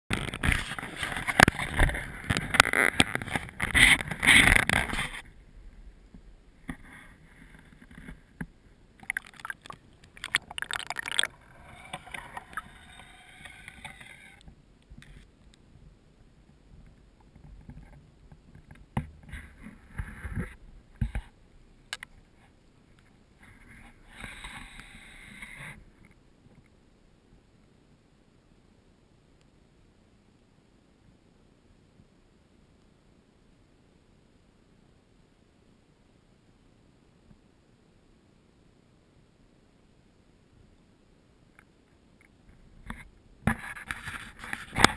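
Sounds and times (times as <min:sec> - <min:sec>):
water splashing against camera: 0:06.6 - 0:15.3.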